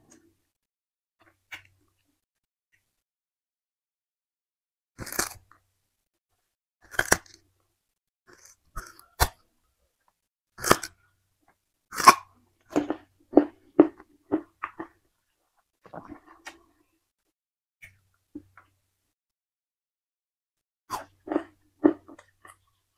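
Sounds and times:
sugarcane crunching chews: 0:05.0 - 0:05.4, 0:06.8 - 0:07.4, 0:08.3 - 0:09.4, 0:10.6 - 0:11.0, 0:11.9 - 0:15.0, 0:20.9 - 0:22.7.

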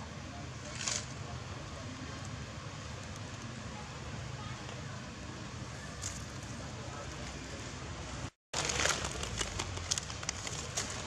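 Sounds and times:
steady outdoor hiss: 0:00.0 - 0:11.0
dry leaves crackling and rustling: 0:08.6 - 0:11.0.

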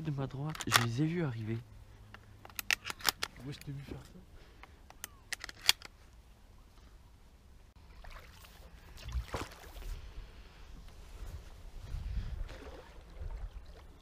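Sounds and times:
water swishing: 0:07.8 - 0:10.4, 0:12.0 - 0:14.0.

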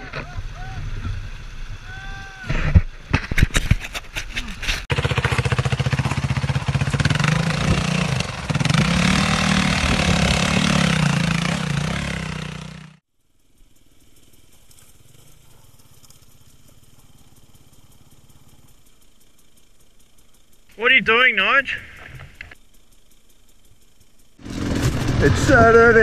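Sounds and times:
motorcycle engine revving: 0:04.7 - 0:20.5, 0:21.9 - 0:26.0
quiet steady background: 0:13.0 - 0:24.4.

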